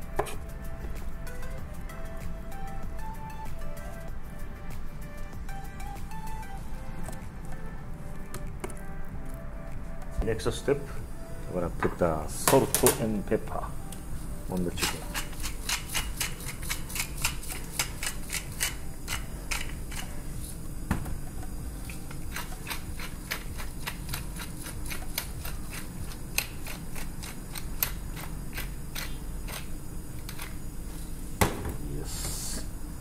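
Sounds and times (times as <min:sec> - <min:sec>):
pepper mill grinding: 0:14.5 - 0:20.6, 0:21.8 - 0:30.7.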